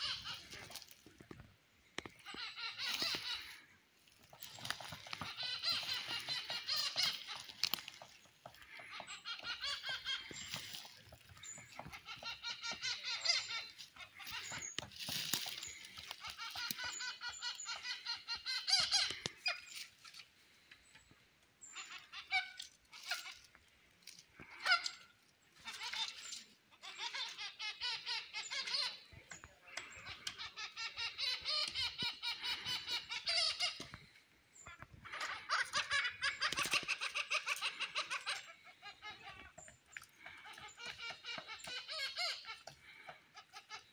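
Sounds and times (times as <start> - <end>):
woodpeckers chattering: 0.0 - 43.9
woodpecker tapping: 4.2 - 19.5, 39.1 - 43.2.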